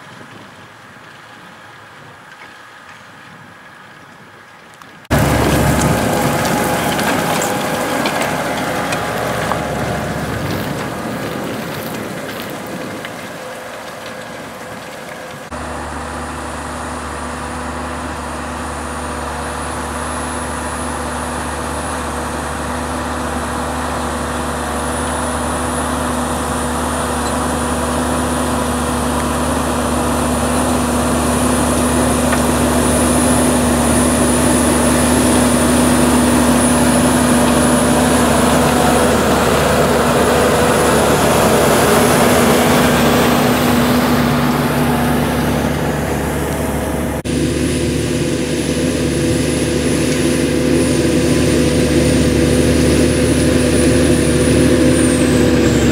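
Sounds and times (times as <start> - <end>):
tractor engine under load: 0.0 - 55.9.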